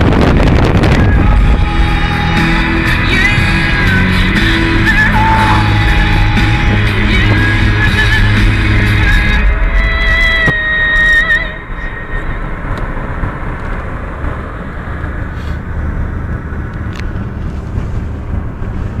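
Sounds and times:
car road and engine noise: 0.0 - 19.0
music: 0.8 - 11.6.

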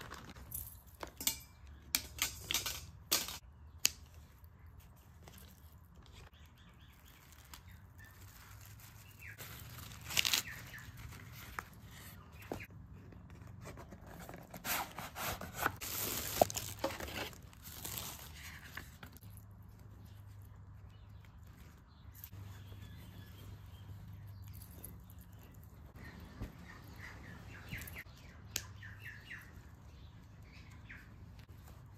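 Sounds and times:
cardboard and paper rustling: 0.0 - 0.8, 6.9 - 20.4.

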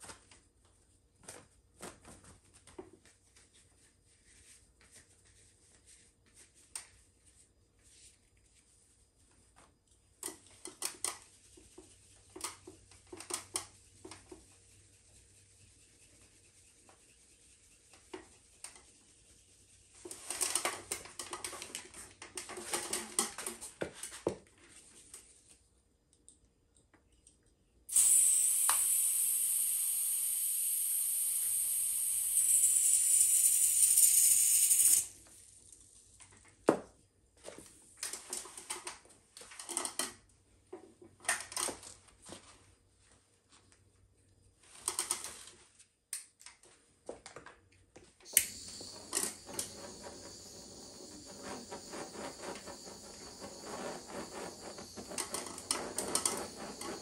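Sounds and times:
loud steady hiss: 27.9 - 35.2, 48.3 - 57.0.

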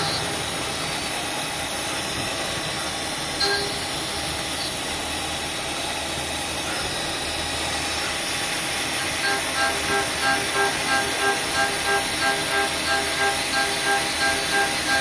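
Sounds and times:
milling machine cutting metal: 0.0 - 2.2, 8.4 - 15.0
short machine whine: 0.0 - 2.2, 8.9 - 15.0.

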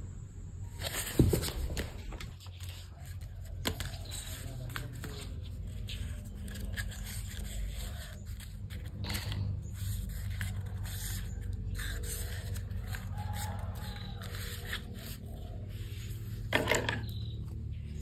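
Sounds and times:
paper crinkle: 0.8 - 16.5
paper rustling: 0.8 - 17.2
scissors snipping paper: 2.5 - 15.6.

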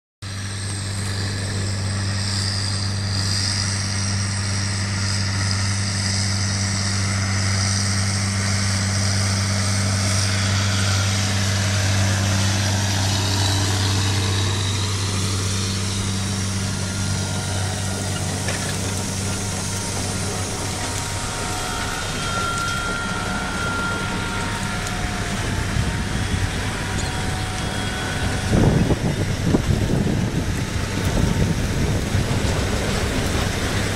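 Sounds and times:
high engine whine: 0.2 - 33.9
tractor diesel engine under load: 0.2 - 33.9
wind buffeting microphone: 3.8 - 33.9.

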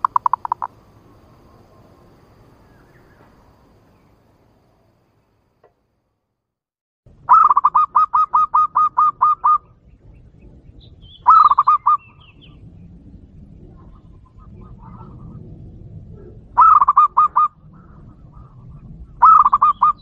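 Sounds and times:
dove cooing: 0.0 - 0.7, 7.3 - 9.7, 11.3 - 12.0, 16.1 - 18.5, 19.2 - 20.0
faint bird chirps: 7.3 - 12.7.

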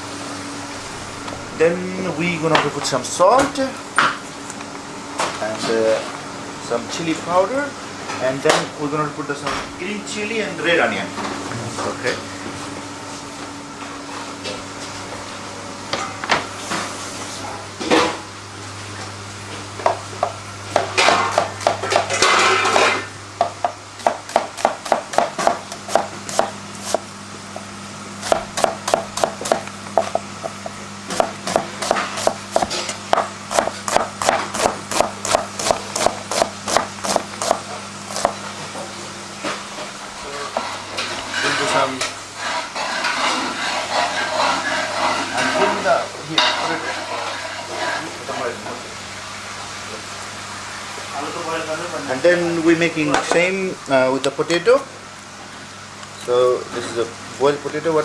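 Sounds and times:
knife chopping on cutting board: 19.8 - 22.2, 22.8 - 27.0, 28.2 - 38.4.

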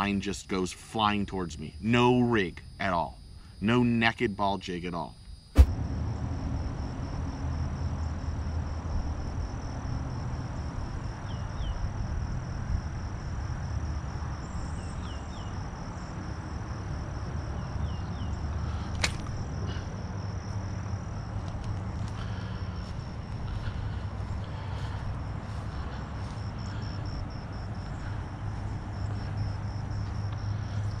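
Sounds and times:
high insect trill: 0.0 - 31.0
sharp pop: 5.6 - 5.8, 19.0 - 19.3
wind rumble on microphone: 5.6 - 31.0
sharp click: 18.9 - 19.3.

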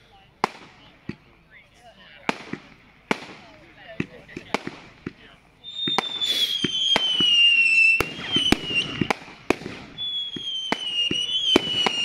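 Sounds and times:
fireworks bangs and pops: 0.0 - 12.0
falling firework whistle: 5.6 - 12.0.

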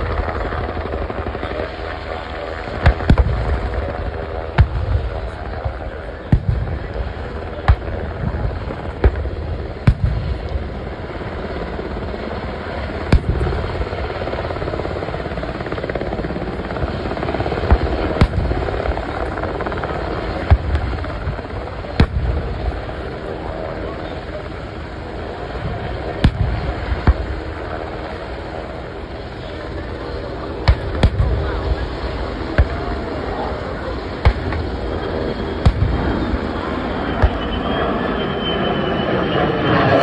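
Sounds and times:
helicopter flying low: 0.0 - 40.0
pyrotechnic bangs: 2.7 - 11.3, 13.1 - 14.2, 17.6 - 23.1, 25.5 - 28.5, 30.6 - 37.6.

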